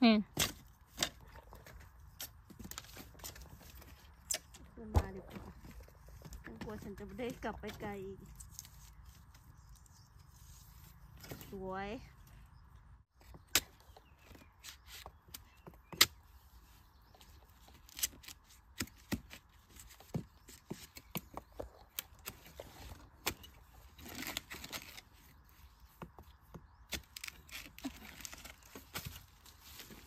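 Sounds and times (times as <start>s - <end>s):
bamboo being chopped and snapped: 14.6s - 16.2s, 17.8s - 19.5s, 26.9s - 29.3s.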